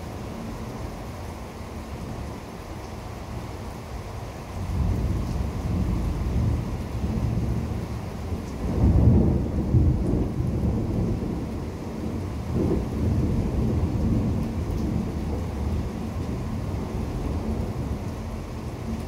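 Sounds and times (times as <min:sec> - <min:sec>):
rain falling: 0:00.0 - 0:19.0
thunder rumbling: 0:04.6 - 0:19.0.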